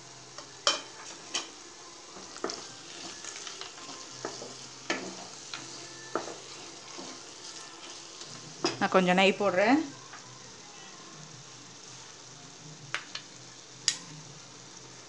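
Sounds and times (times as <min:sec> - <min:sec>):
ghee sizzling: 0:00.0 - 0:15.0
spatula scraping frying pan: 0:02.3 - 0:08.9.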